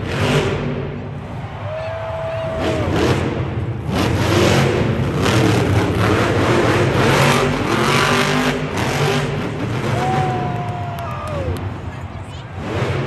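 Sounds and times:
truck engine revving hard: 0.0 - 1.4, 2.4 - 10.6, 12.6 - 13.0.

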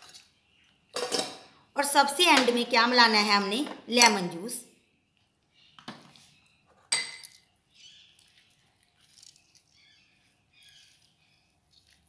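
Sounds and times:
spoon clinking glass bowl: 6.9 - 7.4.

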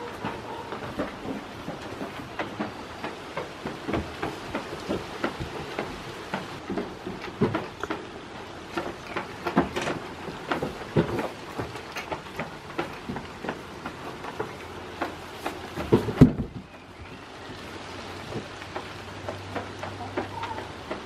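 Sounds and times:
light taps and knocks: 0.0 - 16.9.

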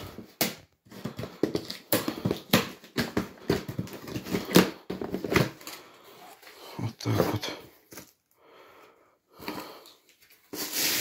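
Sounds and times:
cardboard boxes knocking and thumping: 0.0 - 5.8.

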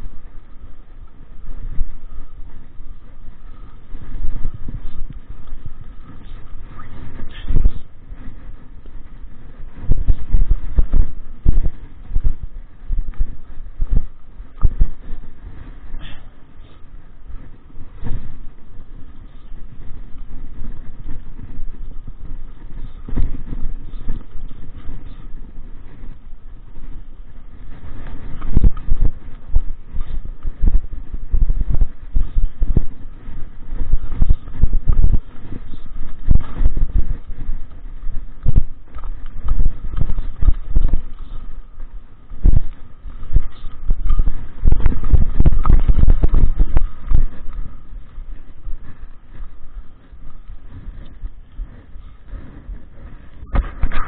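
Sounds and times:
bike rattling over rough dirt: 0.0 - 54.0
wind buffeting microphone: 0.0 - 54.0
bike thumps and rattles: 53.5 - 54.0.

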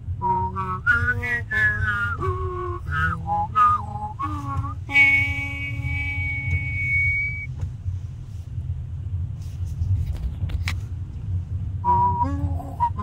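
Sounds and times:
wind rumble on microphone: 0.0 - 13.0
high whistled note: 0.2 - 7.6.

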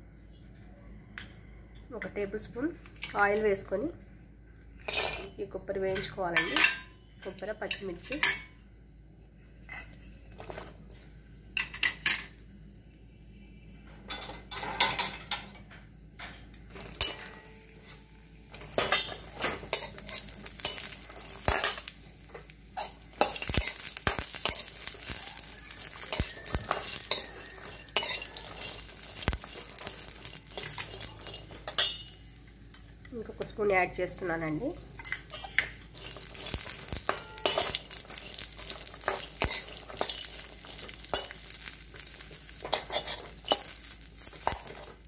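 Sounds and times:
spoon clinking and scraping in pan: 4.8 - 8.5, 9.7 - 10.7, 11.6 - 12.4, 14.1 - 33.0, 34.8 - 45.0
frying sizzle: 4.8 - 45.0.

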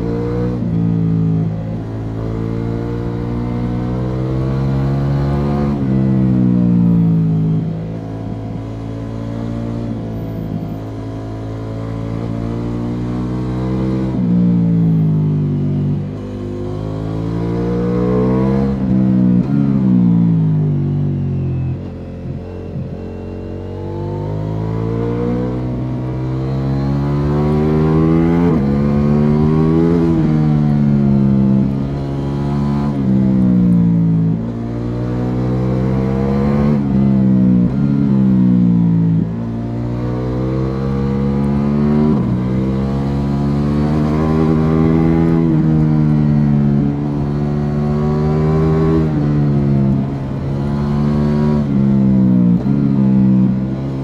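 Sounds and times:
motorcycle engine revving: 10.9 - 54.0.

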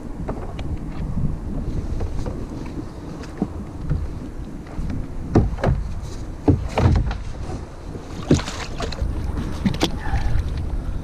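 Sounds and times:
steady low rumble: 0.0 - 11.0
paddle splashes: 1.6 - 10.6
paddle knocking plastic hull: 1.9 - 7.5, 8.2 - 10.0.

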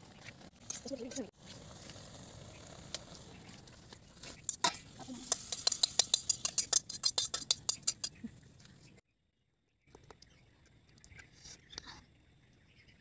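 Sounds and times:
utensil scraping a wok: 0.5 - 8.3.

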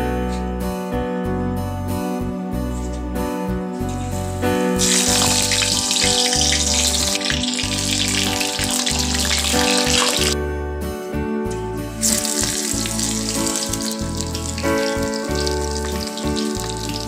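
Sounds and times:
background music: 0.0 - 17.0
food sizzling in hot oil: 4.8 - 10.4, 12.0 - 17.0.

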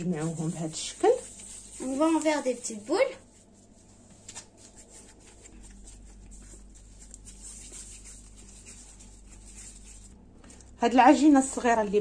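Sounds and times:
hands rolling dough: 0.0 - 10.2
steady low hum: 0.0 - 12.0.

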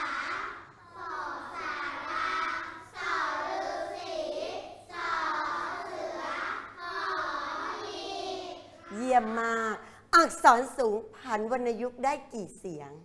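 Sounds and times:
children chanting in unison: 0.0 - 9.0.

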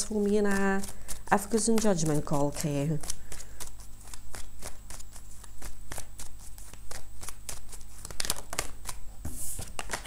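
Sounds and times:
cards being shuffled: 0.0 - 10.0.

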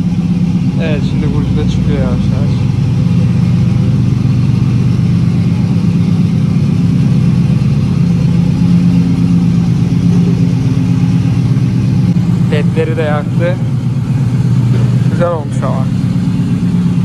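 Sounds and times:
car engine running at low revs: 0.0 - 17.0.

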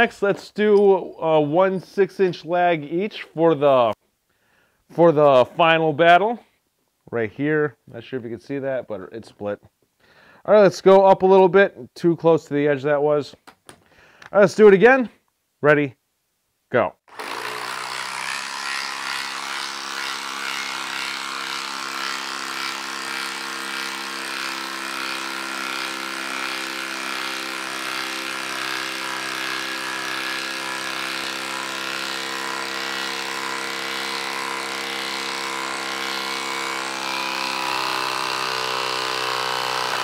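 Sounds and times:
impact driver hammering: 17.1 - 40.0.

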